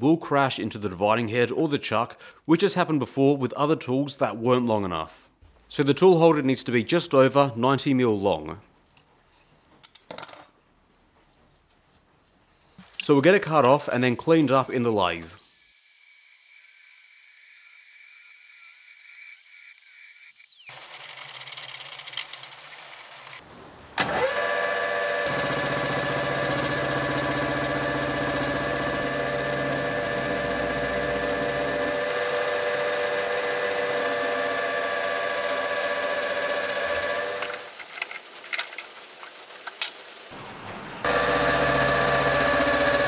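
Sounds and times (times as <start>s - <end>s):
angle grinder cutting steel: 13.6s - 20.9s, 24.2s - 37.7s, 41.0s - 43.0s
metal lathe humming: 24.2s - 37.7s, 41.0s - 43.0s.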